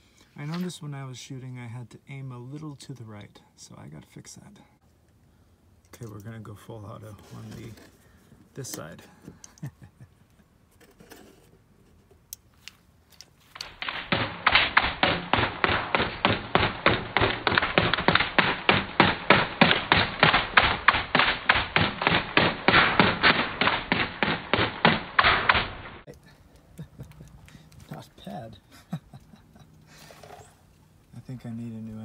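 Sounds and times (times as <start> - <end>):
airsoft gun firing full auto: 13.6 - 26.0.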